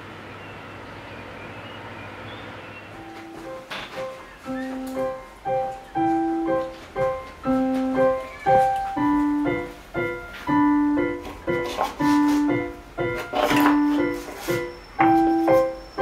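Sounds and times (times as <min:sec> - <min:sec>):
slow gentle solo piano: 0:03.0 - 0:16.0.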